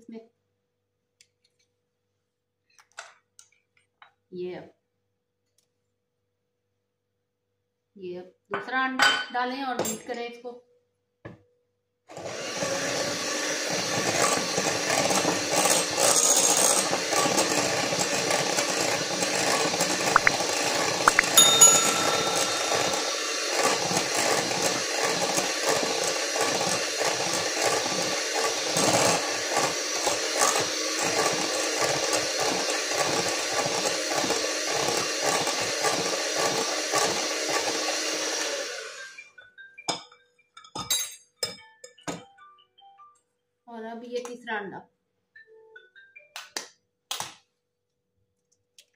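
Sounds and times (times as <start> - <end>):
electric mixer running: 12.1 - 21.2, 21.8 - 39.1
beaters clinking against glass bowl: 20.2 - 20.4, 21.1 - 23.3.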